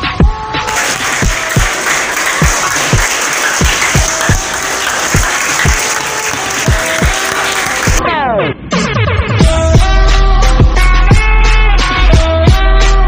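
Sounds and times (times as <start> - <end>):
people clapping: 0.6 - 8.0
music with deep bass beat: 8.8 - 13.0.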